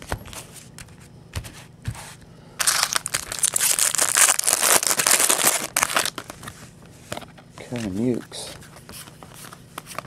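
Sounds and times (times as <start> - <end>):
foil wrapper tearing and crumpling: 2.6 - 6.3.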